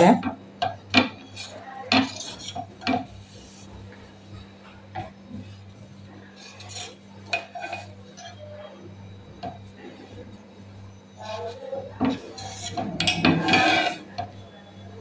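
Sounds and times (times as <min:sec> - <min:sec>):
steady low hum: 0:00.0 - 0:15.0
knife scraping a metal plate: 0:01.1 - 0:03.7, 0:06.4 - 0:08.6, 0:11.2 - 0:14.3.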